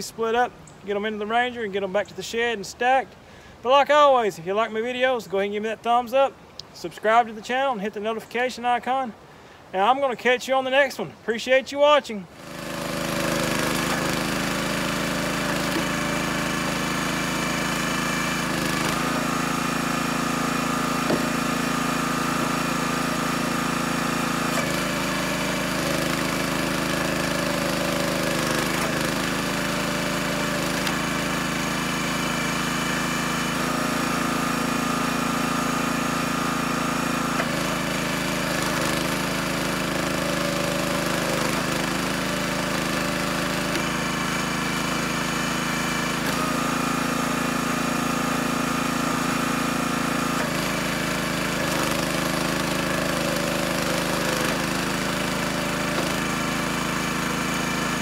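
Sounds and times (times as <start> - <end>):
small gas engine running: 12.3 - 58.0.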